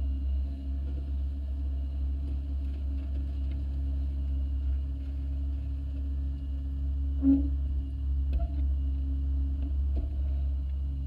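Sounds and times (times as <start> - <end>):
small engine droning: 0.0 - 11.0.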